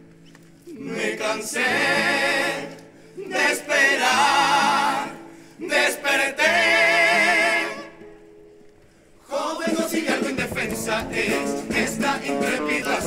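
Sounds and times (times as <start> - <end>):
male chorus singing in harmony: 0.7 - 8.0, 9.2 - 13.0
guitar chords: 10.4 - 13.0.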